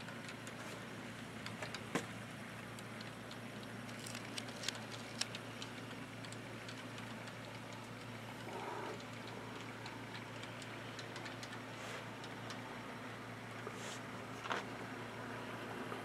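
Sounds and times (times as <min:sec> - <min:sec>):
steady low hum: 0:00.0 - 0:16.0
model train wheels clicking: 0:02.8 - 0:12.6.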